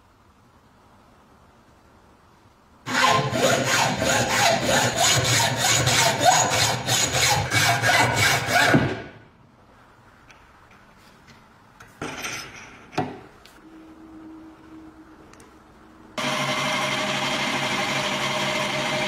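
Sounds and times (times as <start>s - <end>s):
hacksaw cutting metal: 2.9s - 9.0s.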